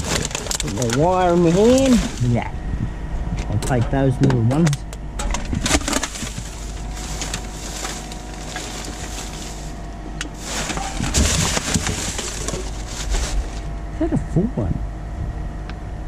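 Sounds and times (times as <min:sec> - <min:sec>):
cans and bottle clattering: 0:00.0 - 0:02.2, 0:05.2 - 0:09.8, 0:10.4 - 0:13.4
plastic bags and paper rustling: 0:00.0 - 0:02.5, 0:05.6 - 0:13.8.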